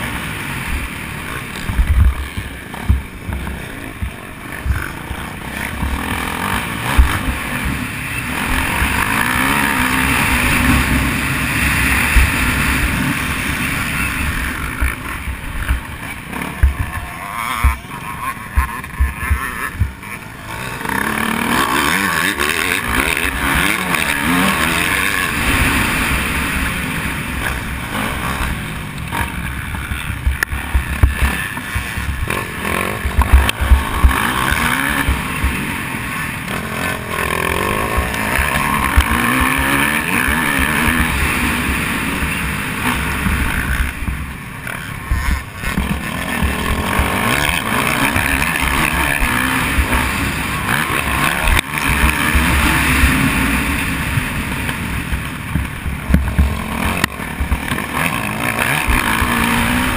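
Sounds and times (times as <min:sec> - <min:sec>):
dirt bike engine revving: 0:00.0 - 0:59.9
knocks from rough track: 0:54.1 - 0:58.0.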